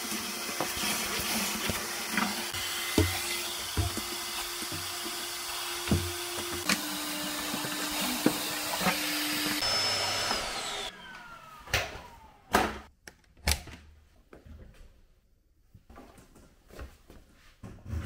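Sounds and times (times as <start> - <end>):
small electric motor whirring: 0.8 - 12.4.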